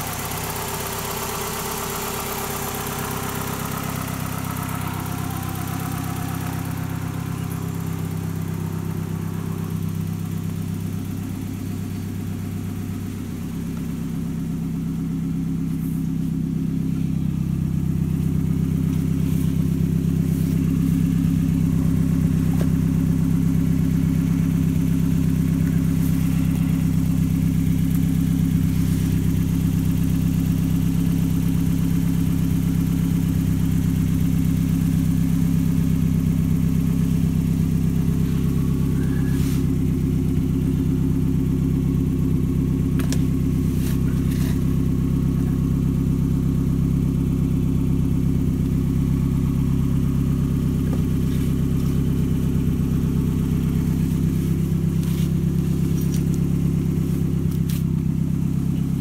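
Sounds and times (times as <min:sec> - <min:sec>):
car engine idling: 0:00.0 - 0:59.0.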